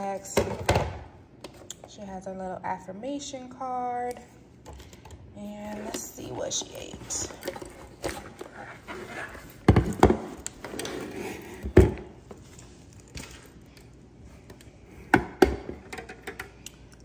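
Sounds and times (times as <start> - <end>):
soft handling noise: 4.6 - 9.7.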